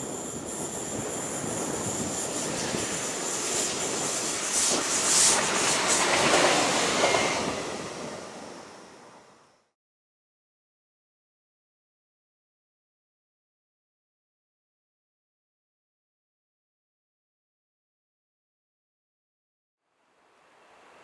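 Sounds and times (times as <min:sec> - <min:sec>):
train wheels rumbling on rail: 0:00.0 - 0:09.4.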